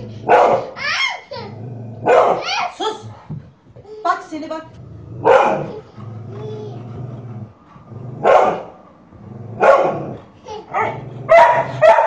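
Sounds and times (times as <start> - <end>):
dog barking: 0.2 - 0.8, 2.0 - 2.7, 5.2 - 5.8, 8.2 - 8.7, 9.6 - 10.2, 10.8 - 12.0.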